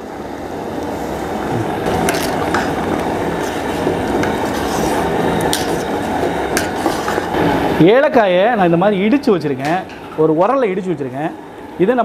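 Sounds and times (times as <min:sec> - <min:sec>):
gas burner rushing: 0:00.0 - 0:12.0
ladle scraping and clicking on pot: 0:01.9 - 0:07.4.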